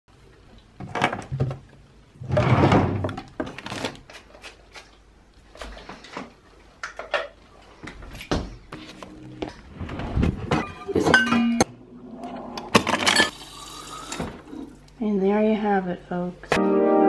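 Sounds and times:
objects rustling and clunking: 0.4s - 11.5s.

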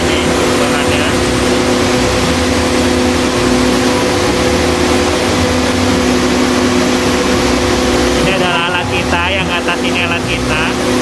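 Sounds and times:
fan rushing air with steady hum: 0.0s - 11.0s.

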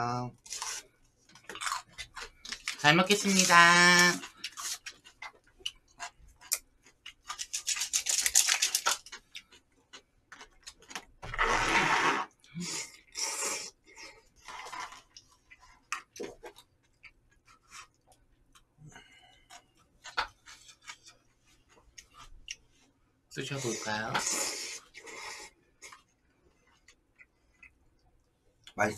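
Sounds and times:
noodles being slurped: 11.3s - 16.6s, 23.5s - 26.0s.

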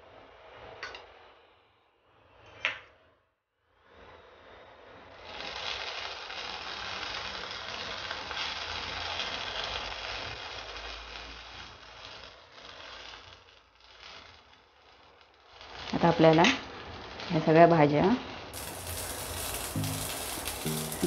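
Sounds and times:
food sizzling in a pan: 5.0s - 21.0s.

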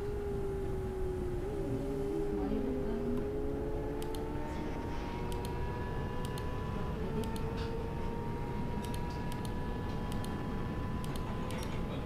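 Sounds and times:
motorcycle engine at high revs: 1.4s - 11.8s
light ticks: 4.0s - 4.2s, 5.3s - 5.6s, 8.8s - 10.4s, 11.0s - 11.8s.

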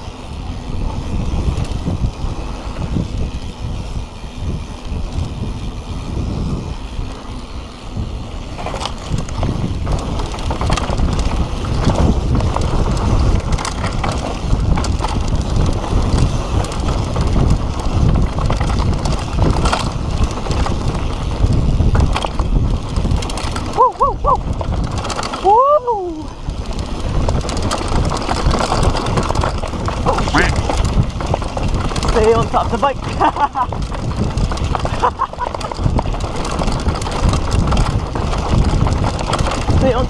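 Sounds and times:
bike clattering over bumps: 0.0s - 40.0s
bike tyre rumble on dirt: 0.0s - 40.0s
wind on microphone: 0.0s - 40.0s.

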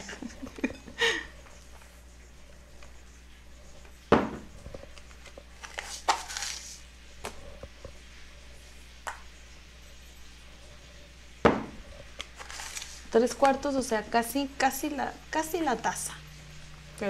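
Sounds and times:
scraping rustle: 11.9s - 13.1s.

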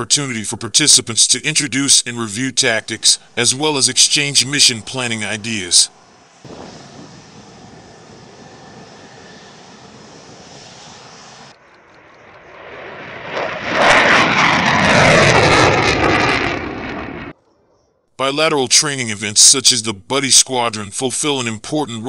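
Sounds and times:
jet flyby roar: 0.0s - 17.4s
jet engine hiss: 1.3s - 12.1s.

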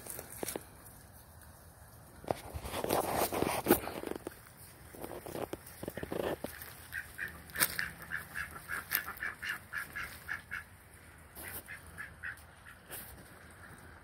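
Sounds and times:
ducks quacking: 5.8s - 14.0s.

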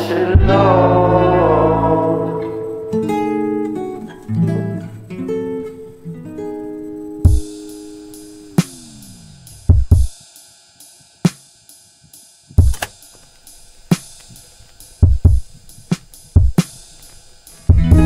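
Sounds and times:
drum kit beat: 0.4s - 0.8s, 6.8s - 18.0s
low sliding note: 7.4s - 9.7s.

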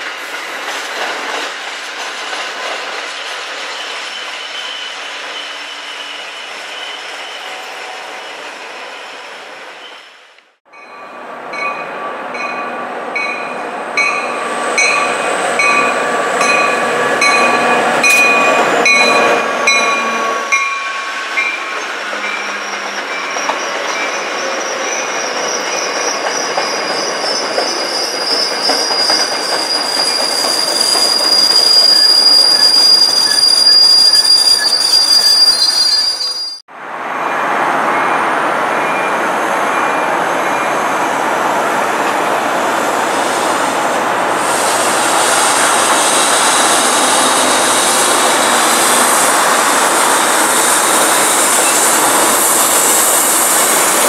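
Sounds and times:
train coaches rolling past: 0.0s - 54.0s
wheels squealing: 13.3s - 36.6s.

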